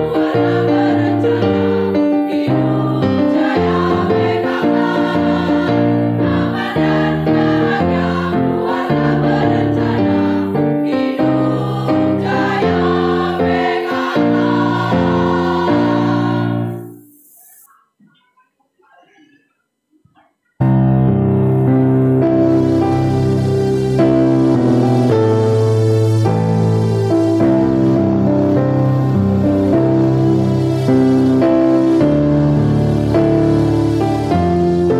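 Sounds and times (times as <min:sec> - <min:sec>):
women's choir singing a march: 0:00.0 - 0:17.0
keyboard accompaniment: 0:00.0 - 0:17.1, 0:20.6 - 0:34.9.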